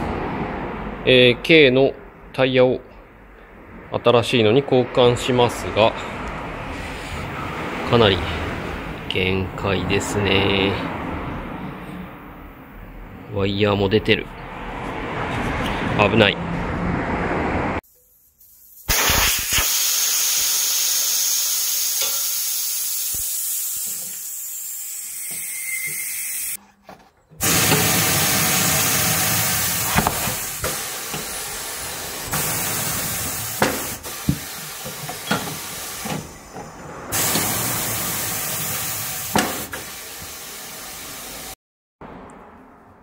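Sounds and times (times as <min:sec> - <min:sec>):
compressed air hissing: 0:18.4 - 0:26.6, 0:27.4 - 0:36.5, 0:37.1 - 0:41.5.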